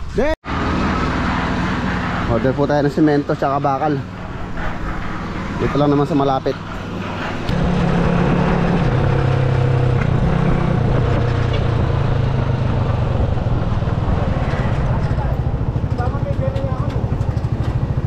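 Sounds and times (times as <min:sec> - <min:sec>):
motorcycle engine running: 0:06.6 - 0:18.0.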